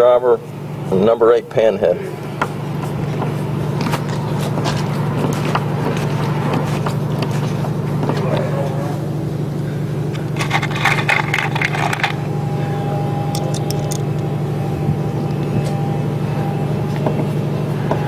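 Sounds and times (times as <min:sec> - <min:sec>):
low machine hum: 0:00.0 - 0:18.0
screwdriver scraping and clicking: 0:10.1 - 0:12.2, 0:13.4 - 0:14.0.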